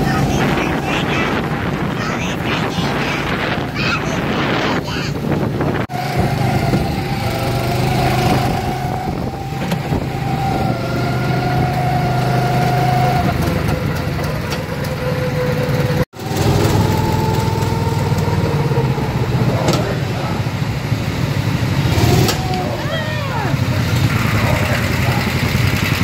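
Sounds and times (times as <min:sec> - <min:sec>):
go-kart engine running: 0:00.0 - 0:26.0.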